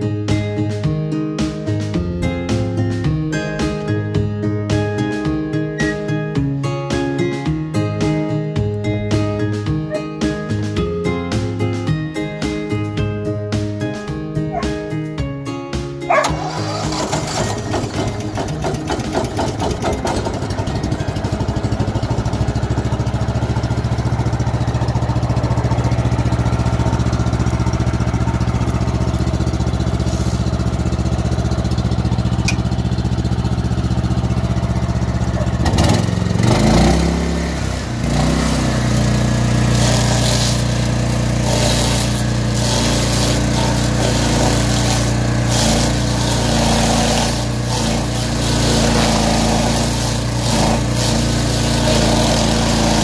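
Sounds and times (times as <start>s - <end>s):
stump grinder petrol engine running: 16.0s - 53.0s.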